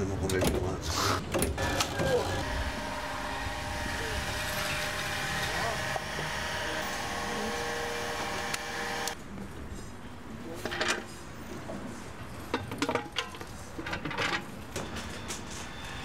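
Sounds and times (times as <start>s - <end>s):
metal table set down on cobblestones: 12.4s - 15.7s.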